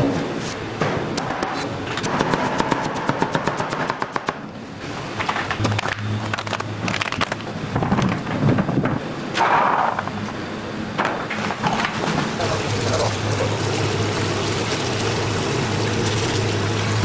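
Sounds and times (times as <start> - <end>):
low hum: 4.3 - 12.1.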